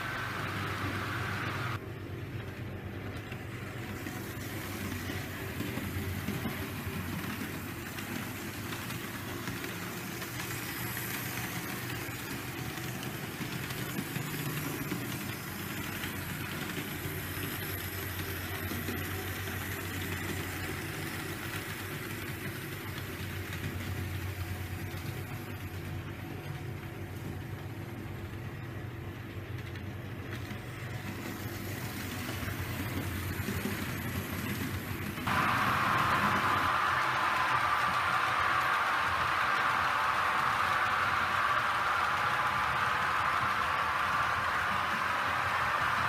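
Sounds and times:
model train motors humming: 0.0s - 1.8s, 2.4s - 46.0s.

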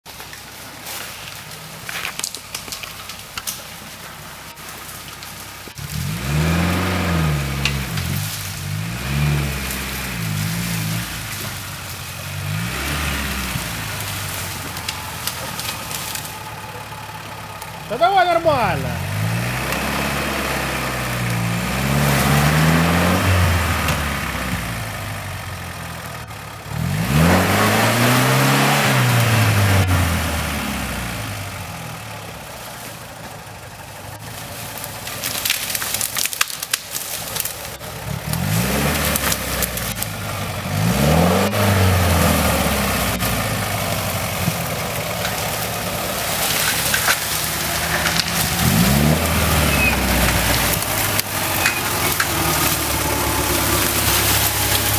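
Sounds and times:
branches crackling against vehicle: 0.0s - 54.9s
off-road vehicle engine revving: 0.0s - 54.9s.

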